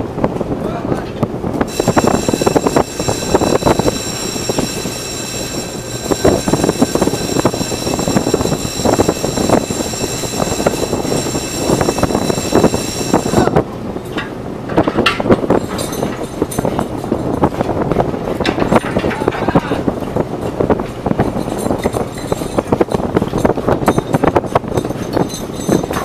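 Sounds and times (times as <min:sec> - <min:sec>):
boat engine and deck machinery: 0:00.0 - 0:26.0
high whining tones: 0:01.6 - 0:13.7
knocks and clatter of gear: 0:14.0 - 0:26.0.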